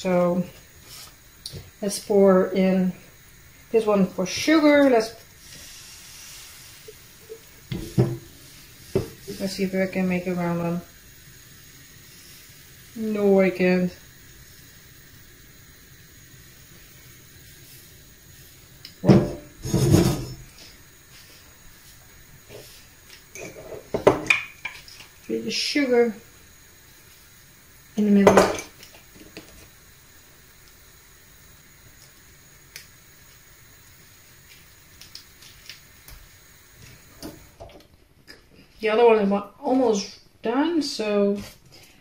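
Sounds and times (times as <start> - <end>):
batter hissing in a hot pan: 0.0 - 37.8, 38.4 - 42.0
pan knocking and scraping: 7.7 - 8.3, 19.0 - 20.4.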